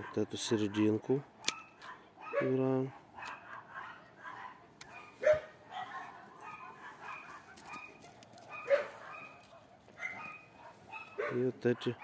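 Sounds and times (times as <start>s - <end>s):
dog barking: 0.0s - 0.8s, 1.4s - 12.0s.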